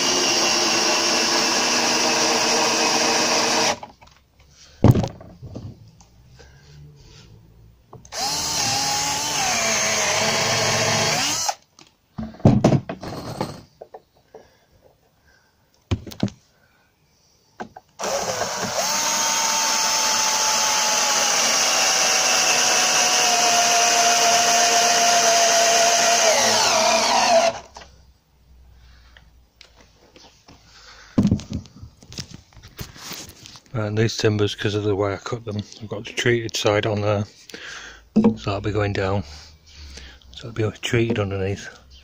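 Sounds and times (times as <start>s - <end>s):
cordless drill driving into timber: 0.0s - 3.9s, 8.1s - 11.6s, 18.0s - 27.8s
knocks: 38.2s - 38.4s.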